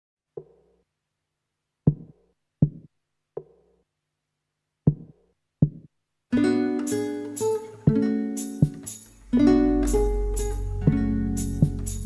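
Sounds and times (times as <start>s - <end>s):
drum machine hits: 1.9s - 3.6s, 4.9s - 5.9s, 7.9s - 9.0s, 10.9s - 12.0s.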